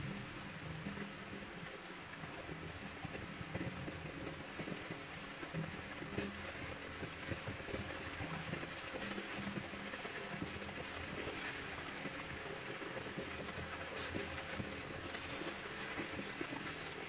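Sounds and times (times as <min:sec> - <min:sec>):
pencil sketching on paper: 0:02.2 - 0:02.6, 0:03.6 - 0:04.6, 0:06.0 - 0:11.6, 0:12.9 - 0:17.0.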